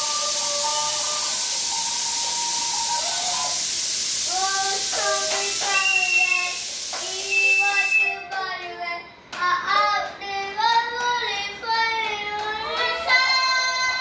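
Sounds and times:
young child singing: 0:00.0 - 0:01.5, 0:04.2 - 0:14.0
steady high hiss: 0:00.0 - 0:08.8.

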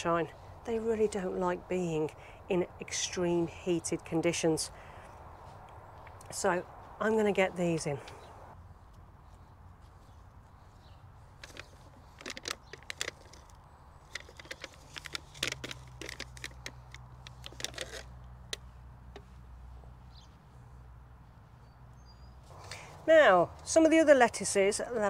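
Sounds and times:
plastic tray crackling and rustling: 0:11.4 - 0:18.1.

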